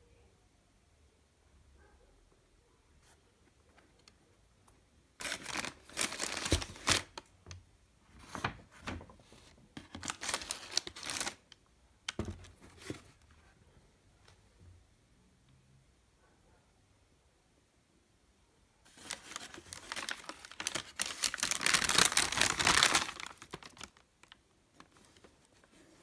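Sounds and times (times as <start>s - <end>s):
tissue paper crinkling: 5.2s - 7.2s, 9.8s - 11.4s, 18.9s - 26.0s.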